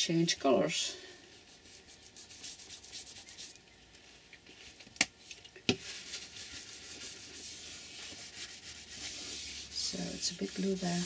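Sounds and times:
hands rubbing paper: 1.4 - 3.6, 5.8 - 11.0.

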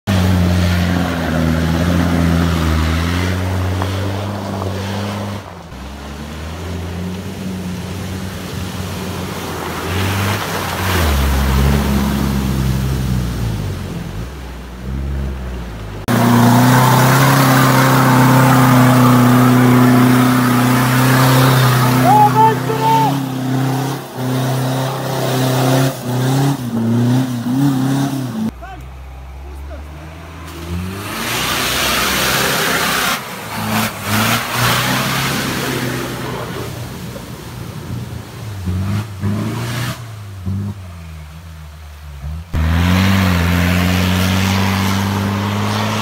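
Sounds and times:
diesel engine revving: 0.0 - 46.0
water splashing: 0.2 - 28.1
engine at steady revs: 29.3 - 46.0.

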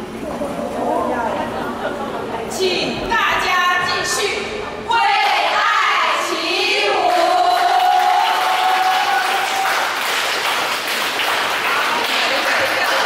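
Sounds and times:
crowd noise: 0.0 - 13.0
applause: 7.5 - 13.0
women cheering: 7.6 - 10.0.

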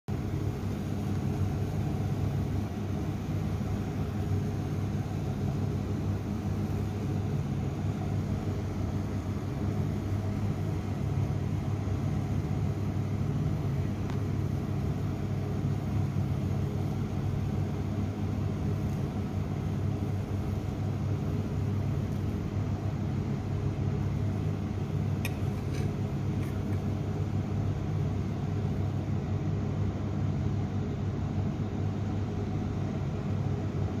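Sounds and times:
low mechanical hum: 0.1 - 34.0.

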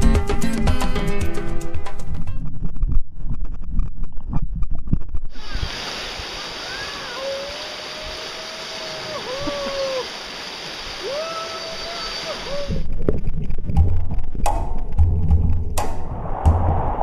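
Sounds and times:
music with thumping beat: 0.0 - 2.1, 13.7 - 16.0
river white water rushing: 5.4 - 12.8
person calling out: 6.7 - 10.1, 11.0 - 12.8.

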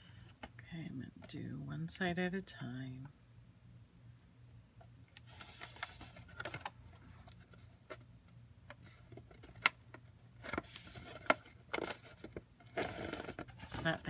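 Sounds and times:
poster board rustling and creasing: 5.2 - 8.0, 10.5 - 14.0.

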